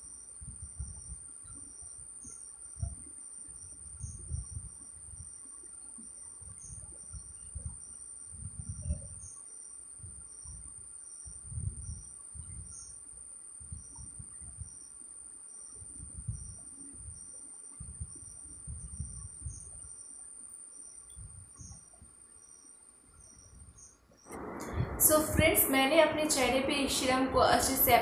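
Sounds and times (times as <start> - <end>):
cricket chirping: 0.0 - 25.0
steady high whine: 24.3 - 28.0
soft low thumps: 24.4 - 28.0.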